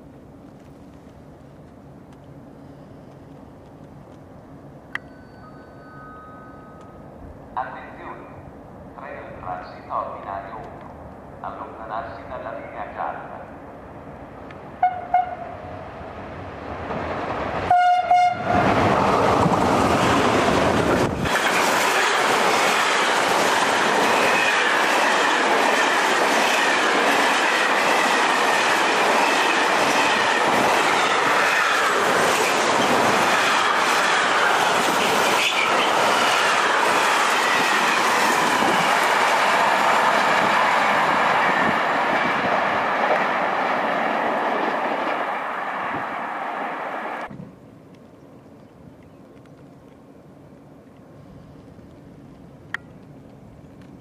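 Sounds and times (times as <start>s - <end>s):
freight train rumble: 0.0s - 54.0s
locomotive horn: 14.8s - 15.5s, 17.7s - 18.6s.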